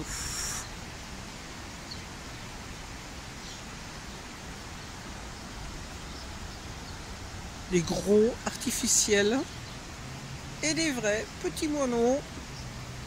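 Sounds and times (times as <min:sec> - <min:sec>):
steady outdoor rushing noise: 0:00.0 - 0:13.0
sparrows chirping: 0:03.4 - 0:10.0.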